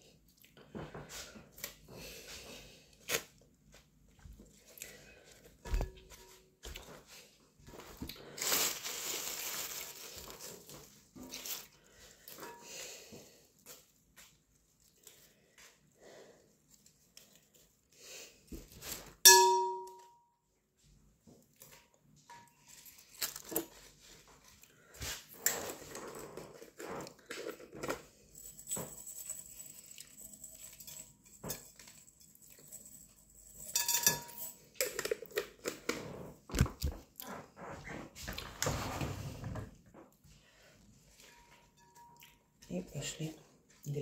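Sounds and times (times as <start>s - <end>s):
ringing clang: 19.3s - 20.2s.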